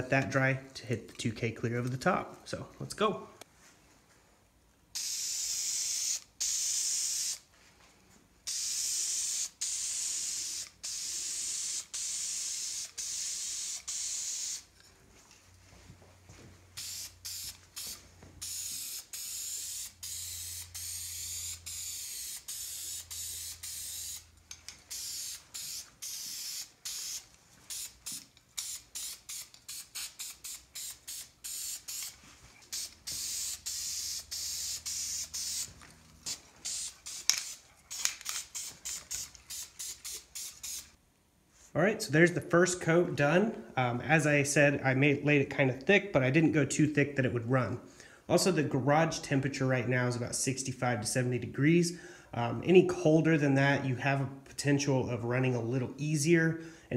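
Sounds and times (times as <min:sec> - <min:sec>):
aerosol spray paint hissing: 0:05.0 - 0:07.5, 0:08.4 - 0:14.7, 0:16.8 - 0:24.3, 0:24.9 - 0:41.0.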